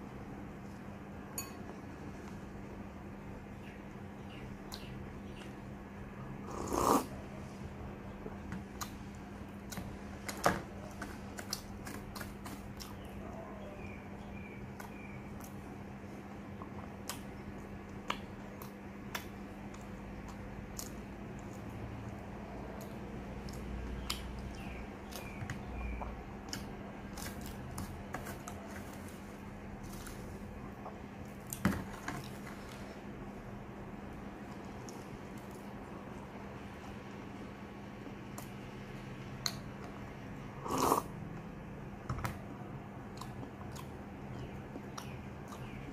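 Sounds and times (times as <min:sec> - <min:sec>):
low steady hum: 0:00.0 - 0:45.9
glass bowl clinking on plate: 0:01.4 - 0:01.7
slurping sip: 0:06.5 - 0:07.2, 0:40.6 - 0:41.1
chewing crisp food: 0:08.8 - 0:13.8, 0:43.0 - 0:45.9
crunchy chewing: 0:08.8 - 0:13.9, 0:16.5 - 0:33.0.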